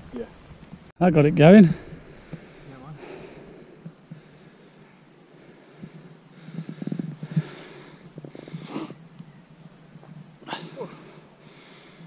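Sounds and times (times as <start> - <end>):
rough huffs of breath: 1.6 - 9.0
person breathing hard: 1.7 - 9.0, 10.4 - 12.0.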